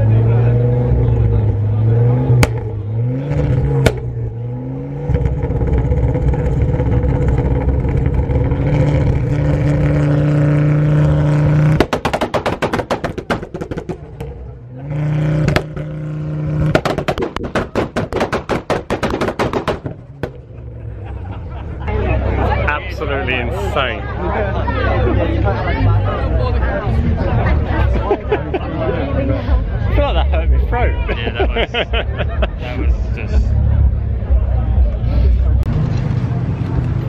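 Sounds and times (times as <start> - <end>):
car engine revving: 0.0 - 37.0
exhaust pops and bangs: 2.4 - 2.7, 3.5 - 4.1, 11.2 - 20.6.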